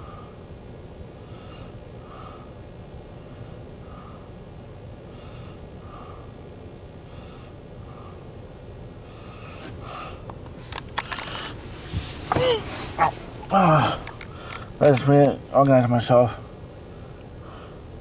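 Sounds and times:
person breathing close: 0:00.0 - 0:00.4, 0:01.2 - 0:02.6, 0:03.2 - 0:04.4, 0:05.1 - 0:06.4, 0:07.0 - 0:08.4, 0:09.0 - 0:10.3, 0:11.1 - 0:14.8, 0:17.4 - 0:17.9
low steady rumble: 0:00.0 - 0:18.0
camera handling clicks and rustling: 0:10.7 - 0:11.6.

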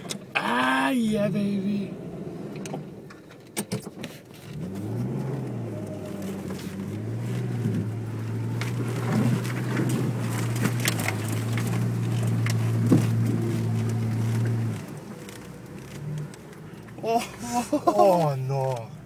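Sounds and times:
car engine under throttle: 0:00.0 - 0:19.0
mud splatting on windshield: 0:04.8 - 0:17.0.

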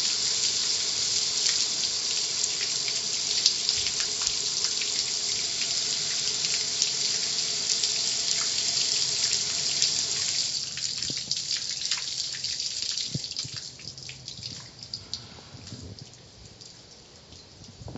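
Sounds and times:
water spray hissing on car: 0:00.0 - 0:11.4
water drips and spatters: 0:00.0 - 0:17.9.

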